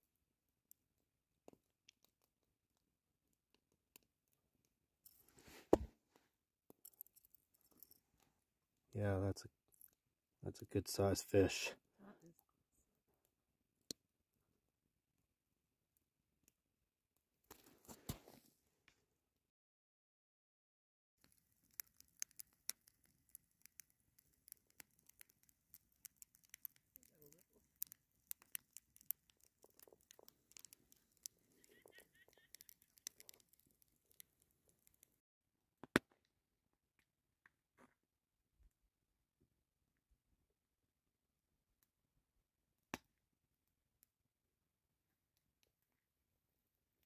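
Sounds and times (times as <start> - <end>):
small clicks and rustling: 6.2 - 8.4, 21.2 - 35.2
wood fire crackling: 21.2 - 35.2.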